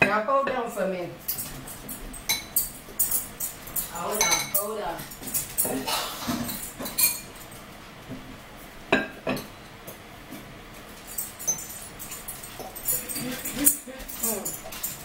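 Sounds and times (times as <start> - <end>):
metal spoon clinking against bowl: 1.2 - 7.6, 11.0 - 15.0.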